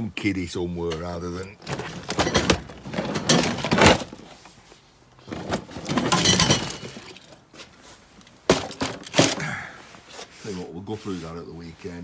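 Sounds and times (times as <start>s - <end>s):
toys clattering in plastic crate: 1.6s - 4.4s, 5.2s - 7.5s, 8.4s - 9.5s.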